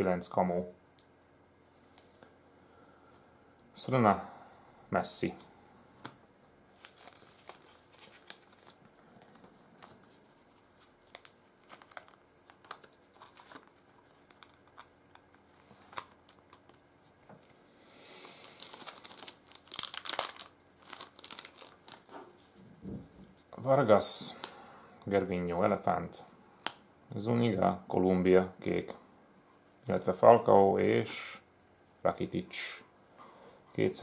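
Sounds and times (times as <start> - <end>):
plastic crinkling: 6.7 - 17.5, 18.1 - 23.6.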